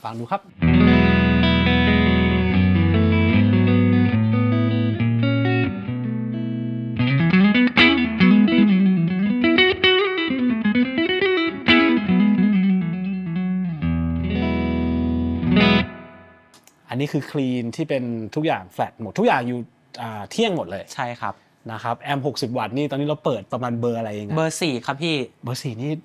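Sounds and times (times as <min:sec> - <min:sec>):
clean electric guitar: 0:00.5 - 0:16.7.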